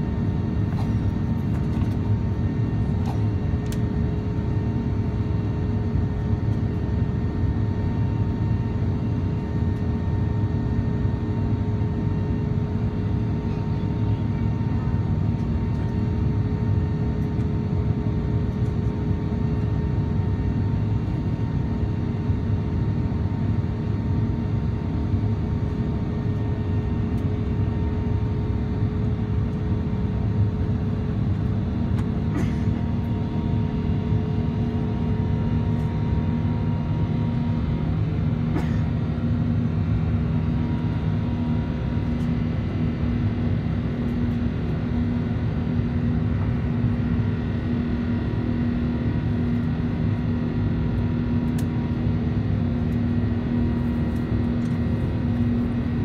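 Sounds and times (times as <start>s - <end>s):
constant hum: 0.0s - 56.0s
jet engines roaring in cabin: 0.0s - 56.0s.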